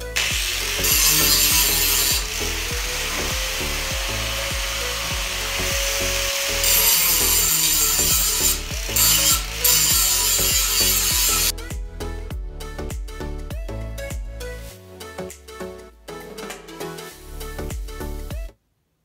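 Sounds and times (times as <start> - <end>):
angle grinder grinding steel: 0.2 - 11.5.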